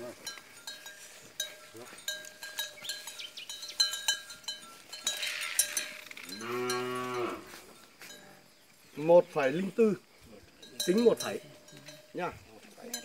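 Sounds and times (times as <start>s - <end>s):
cowbell clanking: 0.0s - 7.4s, 10.6s - 13.0s
cow mooing: 5.1s - 7.6s.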